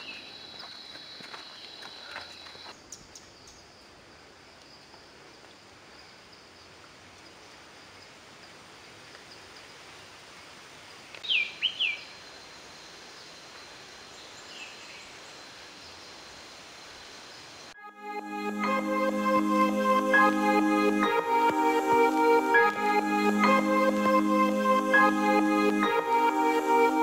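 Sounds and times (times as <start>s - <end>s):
steady hiss: 2.6s - 17.8s
thin high tone: 17.8s - 27.0s.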